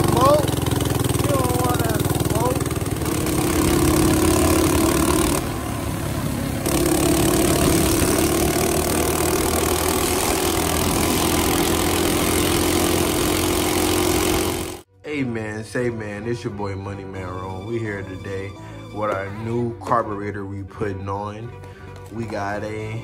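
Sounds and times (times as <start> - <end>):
minibike engine droning: 0.0 - 14.9.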